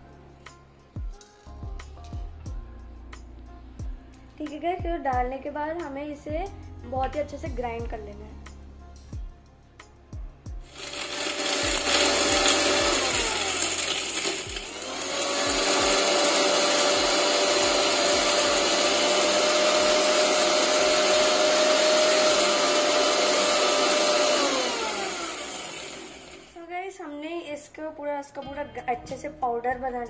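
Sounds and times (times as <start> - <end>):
mixer grinder motor grinding: 10.7 - 26.6.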